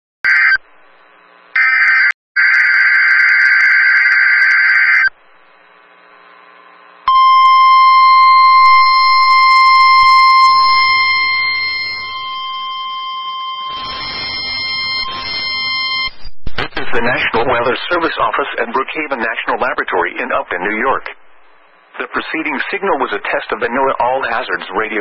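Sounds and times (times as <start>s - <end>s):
long steady alarm beep: 7.1s - 16.2s.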